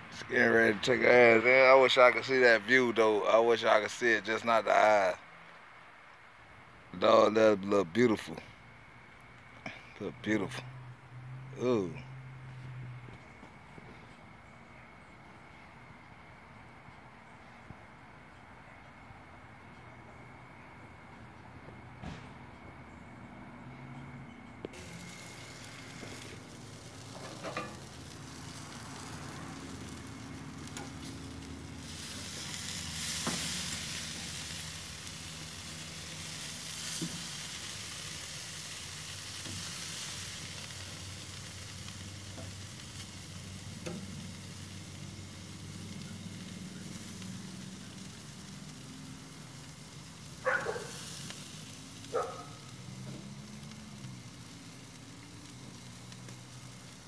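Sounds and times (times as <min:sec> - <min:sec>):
meat sizzling on a grill: 0:00.0 - 0:05.2, 0:24.7 - 0:57.0.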